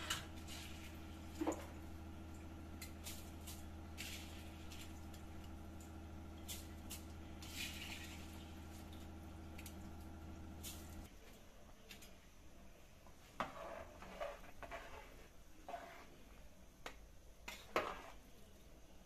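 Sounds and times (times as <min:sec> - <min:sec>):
steady low hum: 0:00.0 - 0:11.1.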